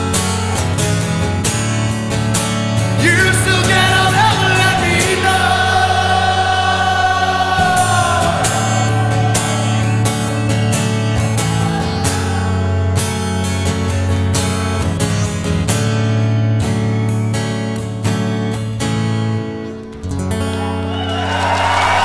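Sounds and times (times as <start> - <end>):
acoustic guitar strumming: 0.0 - 22.0
man singing: 3.0 - 10.4.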